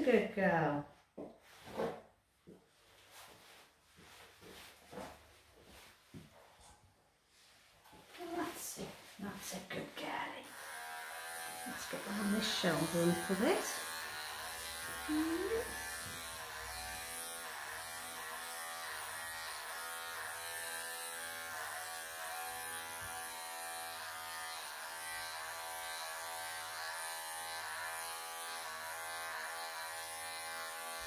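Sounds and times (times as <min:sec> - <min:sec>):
electric pet clippers buzzing: 0:10.4 - 0:31.0.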